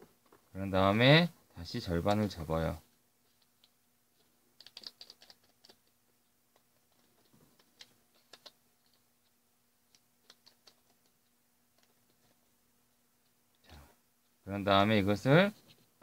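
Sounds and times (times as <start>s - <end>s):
paper folding crackles: 6.5s - 9.1s.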